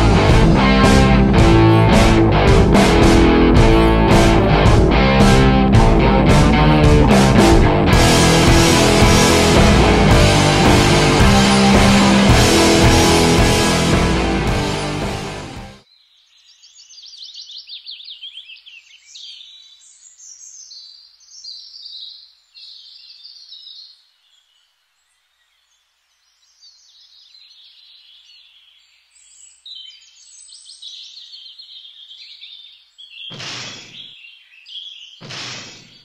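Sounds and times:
loud rushing noise: 0:00.0 - 0:15.8
songbirds chirping: 0:00.0 - 0:36.0.

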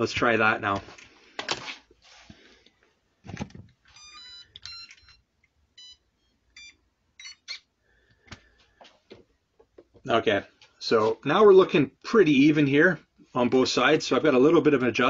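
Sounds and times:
short electronic beeps: 0:04.0 - 0:05.2, 0:06.6 - 0:07.7.

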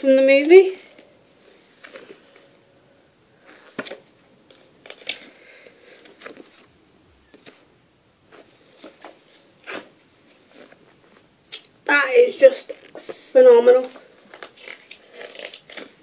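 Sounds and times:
paper pages rustling: 0:03.4 - 0:06.7, 0:07.3 - 0:07.7, 0:08.3 - 0:11.3, 0:12.6 - 0:16.0.

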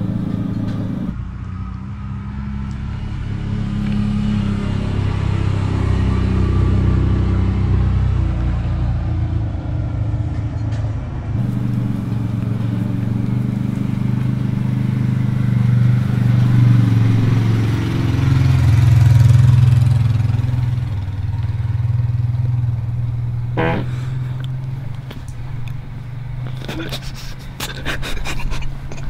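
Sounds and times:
atv engine running: 0:00.0 - 0:01.2, 0:11.4 - 0:28.1.

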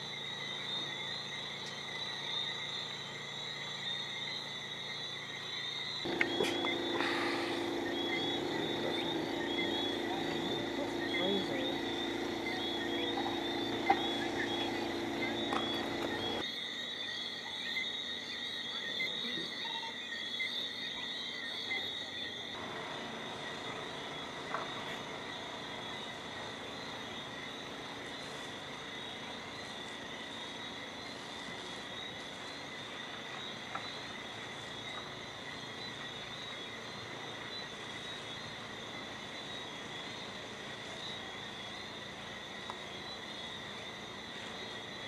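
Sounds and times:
insects and frogs chorus: 0:00.0 - 0:45.0.

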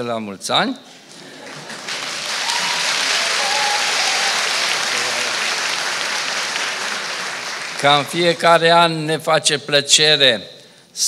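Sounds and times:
audience applauding: 0:01.2 - 0:09.1.

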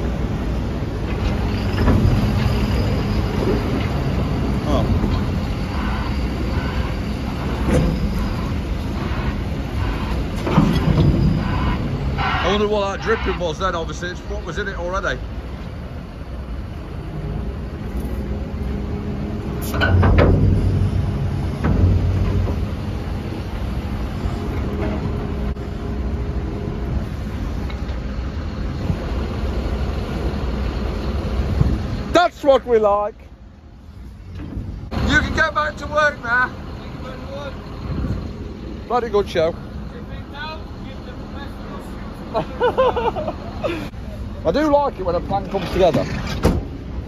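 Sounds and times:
diesel engine running: 0:00.0 - 0:47.0
loading shovel rumbling: 0:17.8 - 0:25.6, 0:45.1 - 0:47.0.

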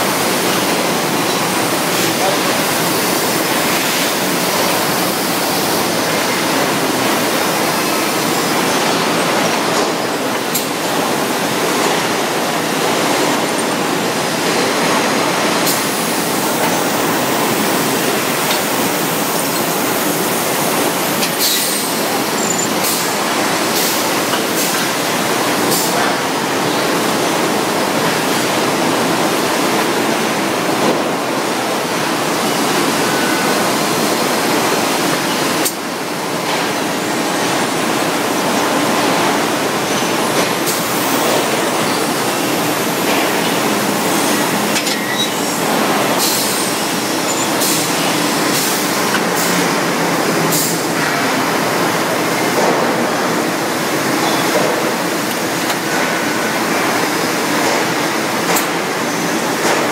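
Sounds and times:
foundry machinery roaring: 0:00.0 - 0:26.2.

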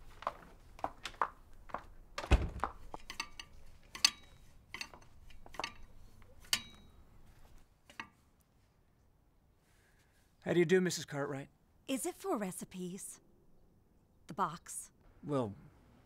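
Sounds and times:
heavy metal thunk: 0:02.2 - 0:02.7.

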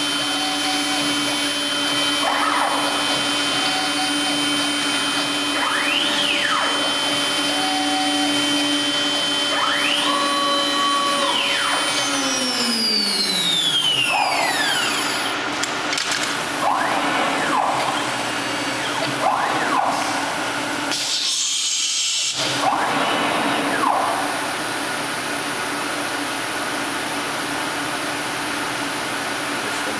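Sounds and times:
axis drives whining: 0:00.0 - 0:21.4
cnc router moving: 0:00.0 - 0:25.8.

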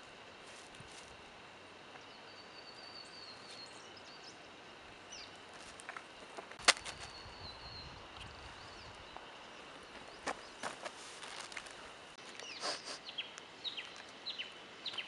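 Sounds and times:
faint high bird chirps: 0:02.0 - 0:04.5, 0:06.9 - 0:10.6.

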